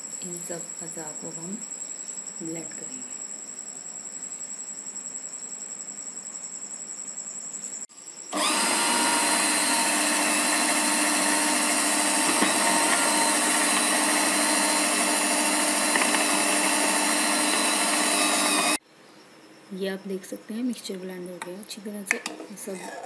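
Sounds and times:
blender motor whirring: 0:08.3 - 0:18.8.

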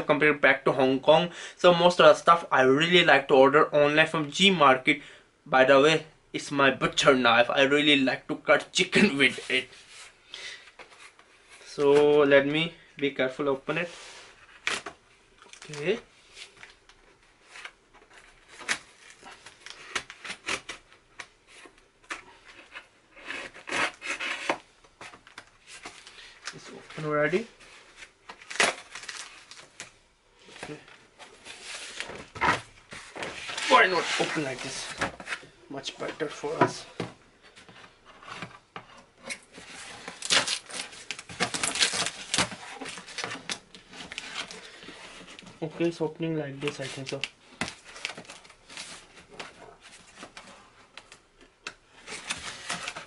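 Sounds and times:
knife scraping cardboard box: 0:22.6 - 0:24.6.

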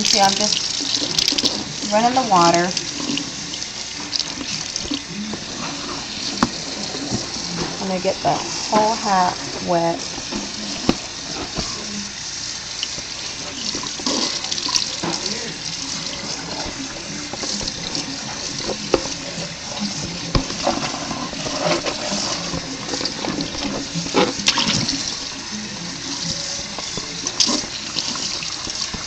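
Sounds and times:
faucet running into sink: 0:00.0 - 0:29.0
water splashing on hat: 0:21.9 - 0:29.0.

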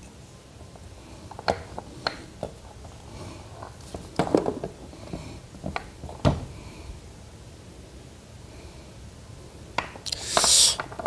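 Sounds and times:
parts rattling: 0:10.1 - 0:11.0.

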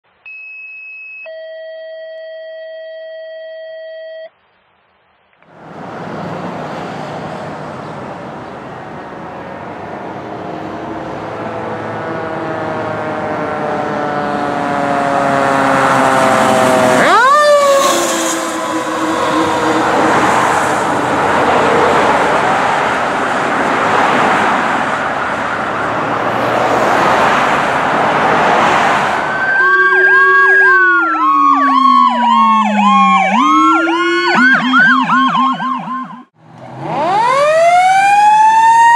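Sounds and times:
engine and tyre noise: 0:05.4 - 0:38.9
fire engine siren wailing: 0:08.2 - 0:38.9
fast yelping siren: 0:12.9 - 0:21.9, 0:29.3 - 0:38.9.

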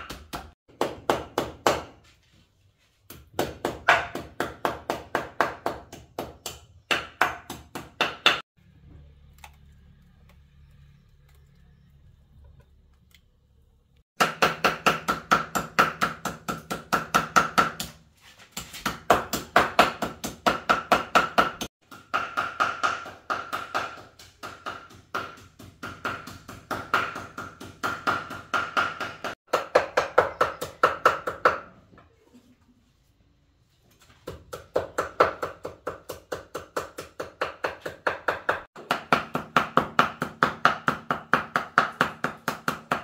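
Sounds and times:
cleaver chopping meat on wooden board: 0:03.1 - 0:08.5, 0:14.2 - 0:18.0, 0:18.6 - 0:31.6, 0:34.2 - 0:43.0.

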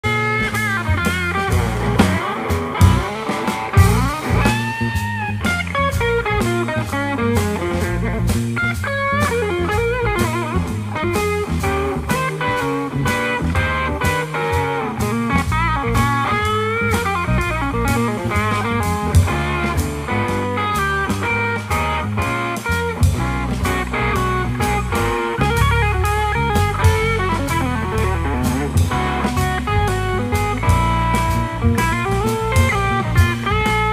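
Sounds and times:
drum kit: 0:00.0 - 0:33.9
electric bass: 0:00.0 - 0:33.9
electric guitar lead line: 0:00.0 - 0:33.9.

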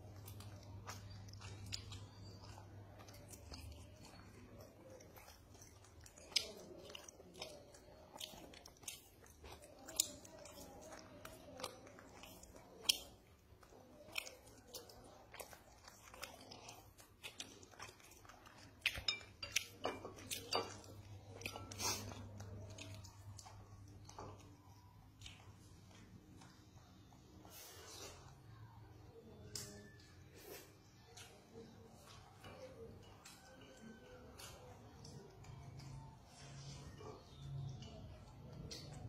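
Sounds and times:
monkey chewing food: 0:00.0 - 0:27.8.

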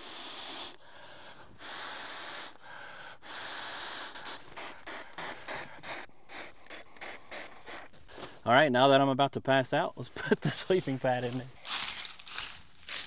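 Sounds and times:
man blowing into valve: 0:00.0 - 0:00.8, 0:01.6 - 0:08.3.

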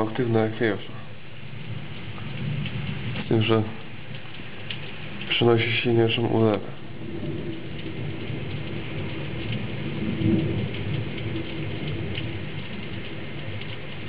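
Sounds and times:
heavy rain pouring: 0:00.0 - 0:14.0
thunder rumble: 0:00.0 - 0:14.0
drops ticking on a surface: 0:07.3 - 0:14.0.

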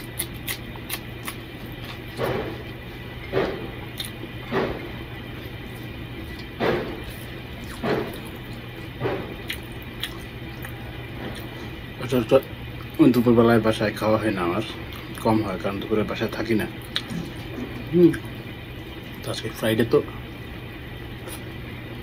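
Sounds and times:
wet chewing and eating sounds: 0:00.0 - 0:13.1, 0:14.8 - 0:15.3, 0:16.8 - 0:19.3, 0:21.1 - 0:21.6
ceiling fan humming: 0:00.0 - 0:22.0.

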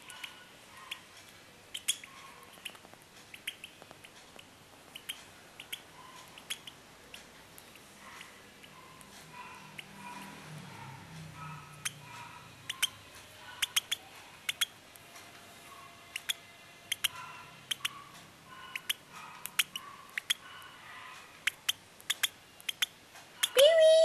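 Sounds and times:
bird chick peeping: 0:01.7 - 0:10.2, 0:11.8 - 0:14.8, 0:16.1 - 0:23.6
sharp clicks: 0:21.4 - 0:23.6.

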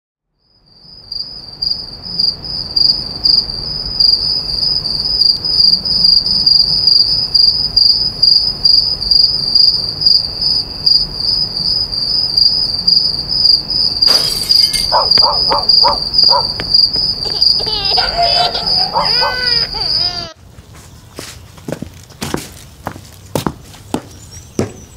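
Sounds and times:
crickets chirping: 0:00.3 - 0:21.6
wavering wail: 0:17.3 - 0:20.4.

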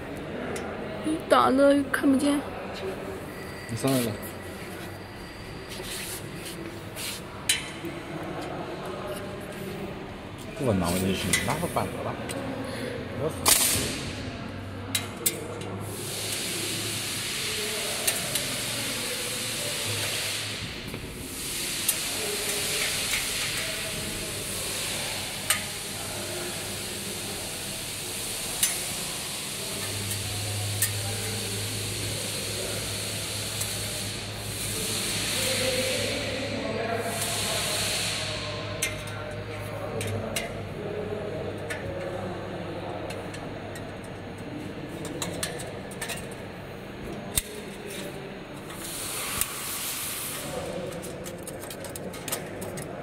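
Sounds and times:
steady hiss: 0:15.8 - 0:39.0, 0:48.6 - 0:51.0.

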